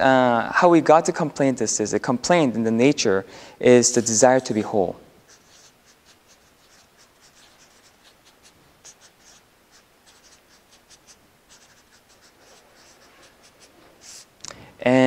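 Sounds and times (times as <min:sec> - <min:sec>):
marker pen scratching on paper: 0:03.9 - 0:14.3.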